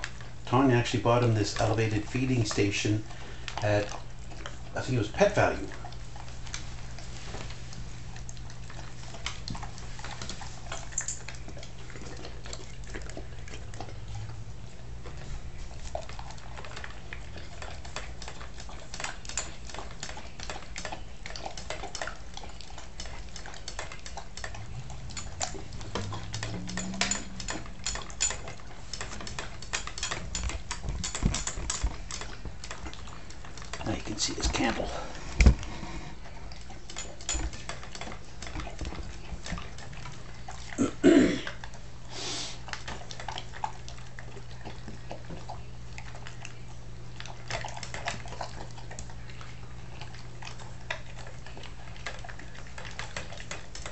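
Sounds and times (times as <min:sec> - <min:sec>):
dog chewing wet food: 0:00.0 - 0:53.9
steady low hum: 0:00.0 - 0:53.9
food clinking against steel bowl: 0:24.4 - 0:32.3.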